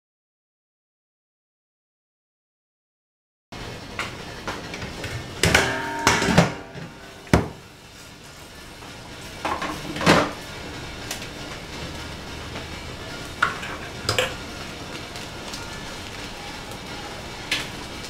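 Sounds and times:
ringing metal pot clanks: 0:05.4 - 0:07.6.

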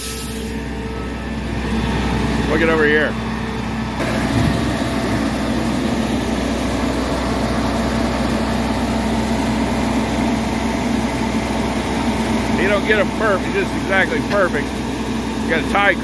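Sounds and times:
diesel truck engine running: 0:00.0 - 0:16.0.

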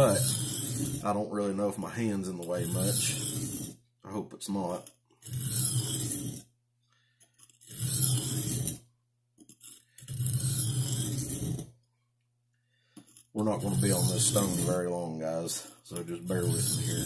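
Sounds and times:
knife scraping on sharpening stone: 0:00.0 - 0:01.0, 0:02.4 - 0:03.8, 0:04.7 - 0:06.4, 0:07.1 - 0:08.8, 0:09.4 - 0:11.7, 0:12.8 - 0:14.8, 0:15.5 - 0:17.0.

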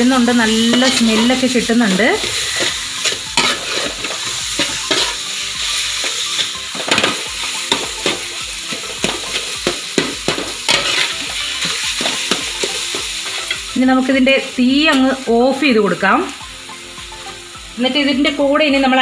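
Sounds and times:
metal spatula scraping a pan: 0:00.0 - 0:13.8
frying sizzle: 0:00.0 - 0:19.0.

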